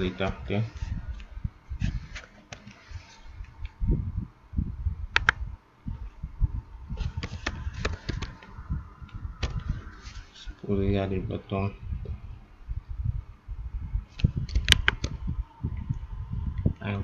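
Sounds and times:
dull low thumps: 0.0s - 2.1s, 3.3s - 17.0s
mouse clicks: 5.1s - 5.4s, 14.2s - 15.2s.

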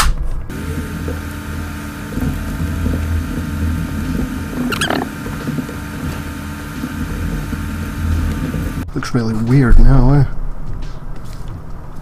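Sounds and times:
low machine hum: 0.5s - 8.9s.

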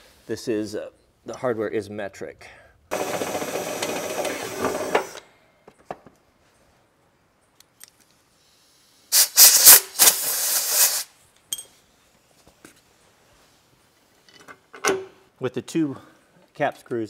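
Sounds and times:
cordless drill running: 2.9s - 5.2s
compressed air hissing: 8.5s - 11.1s.

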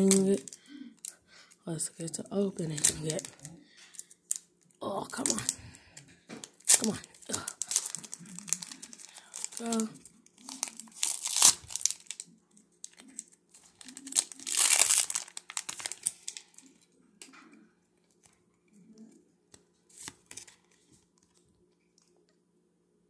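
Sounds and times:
foil wrapper crinkling and tearing: 0.0s - 1.2s, 2.6s - 5.8s, 6.4s - 16.8s.

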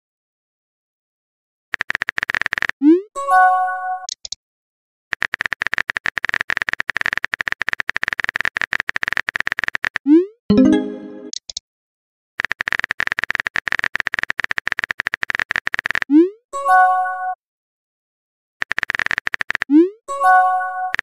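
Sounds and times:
rapid typing clicks: 1.7s - 2.8s, 5.1s - 10.1s, 12.4s - 16.1s, 18.6s - 19.7s.

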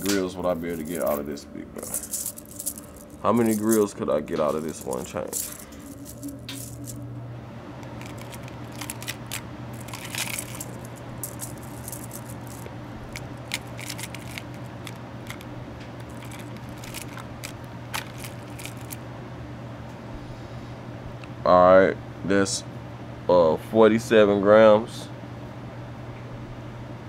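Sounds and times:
metal chain clinking and rattling: 0.0s - 3.9s, 4.5s - 7.0s, 7.8s - 19.0s
low hum: 0.0s - 19.7s.

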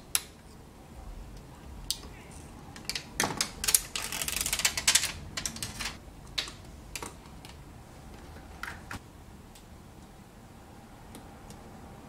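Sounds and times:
plastic liner peeling crackle: 2.8s - 6.0s.

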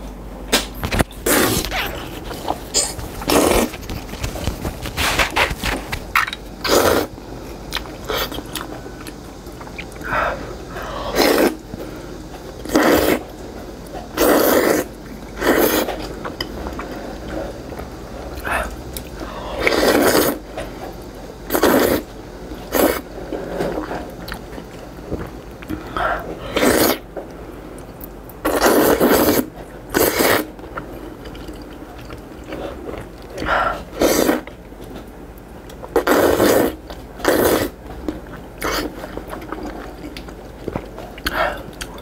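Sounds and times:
noodles being slurped: 1.2s - 7.1s, 11.0s - 11.7s, 12.6s - 13.3s, 14.1s - 16.2s, 18.4s - 20.4s, 21.5s - 24.7s, 25.6s - 27.0s, 28.4s - 34.5s, 35.9s - 42.0s
mouth and chewing noises: 7.7s - 10.1s, 27.7s - 42.0s.

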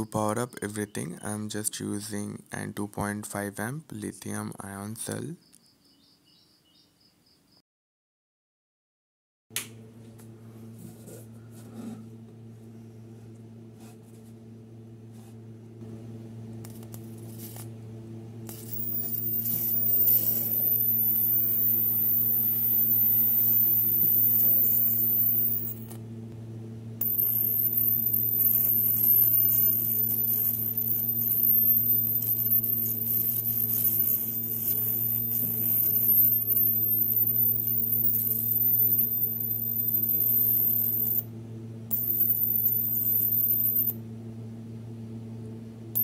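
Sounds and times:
high-voltage arc hissing and whining: 18.4s - 26.0s, 27.0s - 41.3s, 41.9s - 44.0s.

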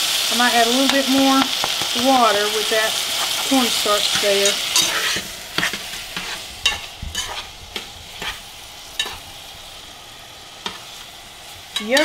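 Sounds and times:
faint sizzle: 0.0s - 12.0s
spoon scraping saucepan: 3.1s - 9.3s.

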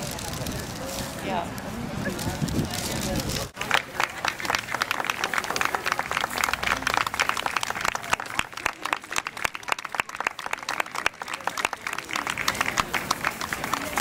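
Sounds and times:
crowd applauding: 3.5s - 14.0s.

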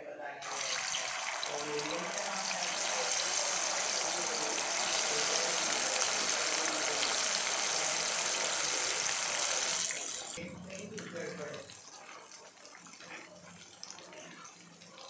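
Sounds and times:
food sizzling in hot oil: 0.4s - 10.4s.

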